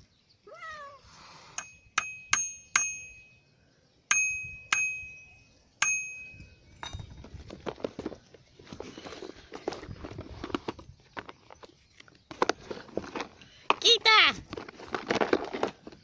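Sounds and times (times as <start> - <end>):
toy xylophone notes: 1.6 - 3.4, 4.1 - 7.0.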